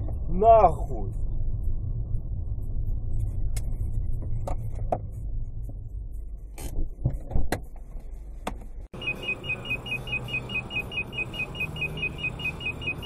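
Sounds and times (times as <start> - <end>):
car engine and road noise: 0.0 - 13.0
high electronic beep: 9.0 - 13.0.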